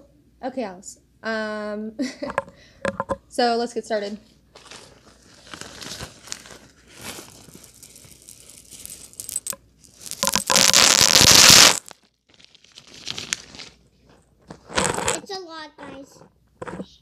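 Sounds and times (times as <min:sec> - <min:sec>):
plastic bag rustling: 0:04.5 - 0:15.2
pebbles poured onto carpet: 0:04.6 - 0:13.5.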